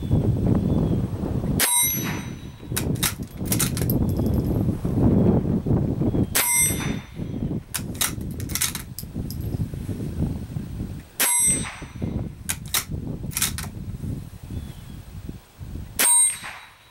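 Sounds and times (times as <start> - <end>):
rifle bolt metallic clicks: 2.8 - 4.4, 7.7 - 9.4, 12.5 - 13.7.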